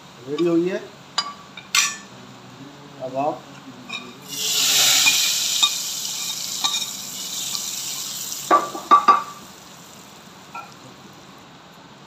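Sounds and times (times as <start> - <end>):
oil sizzling: 4.2 - 11.6.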